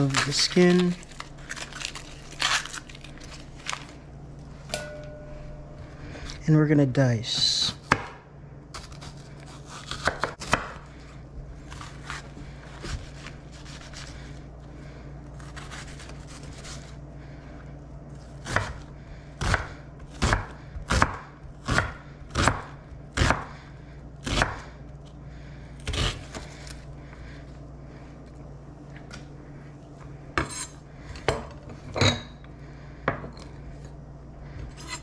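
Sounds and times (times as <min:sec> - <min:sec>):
knife chopping on cutting board: 0:07.8 - 0:08.2, 0:09.7 - 0:10.8, 0:19.4 - 0:23.5, 0:24.2 - 0:24.6.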